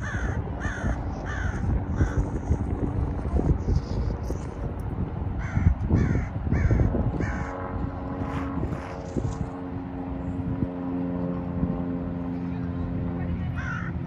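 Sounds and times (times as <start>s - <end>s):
bird cawing harshly: 0.0s - 2.2s, 5.4s - 7.5s, 13.6s - 13.9s
steady low hum: 0.0s - 14.0s.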